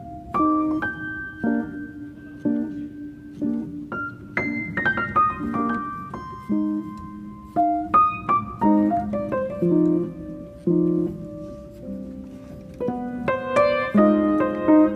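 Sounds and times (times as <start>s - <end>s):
piano music: 0.0s - 14.9s.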